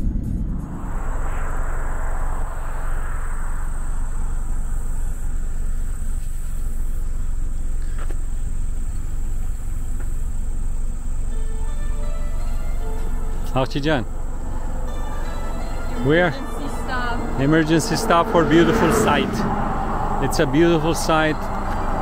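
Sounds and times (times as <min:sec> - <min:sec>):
broad whoosh: 0:00.0 - 0:06.2, 0:14.0 - 0:22.0
car road and engine rumble: 0:00.0 - 0:22.0.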